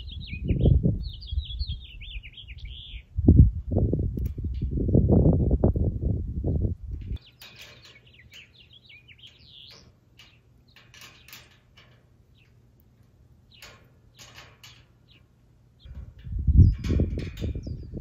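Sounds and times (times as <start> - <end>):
birds chirping: 0.0 - 5.8, 6.4 - 18.0
light clicks and scrapes on metal: 4.2 - 4.8, 6.9 - 18.0.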